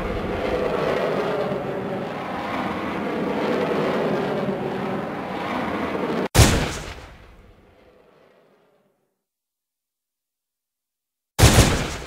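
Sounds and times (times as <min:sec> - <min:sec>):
rushing noise: 0:00.0 - 0:06.2
gunshot-like blast: 0:06.4 - 0:07.2, 0:11.4 - 0:12.0.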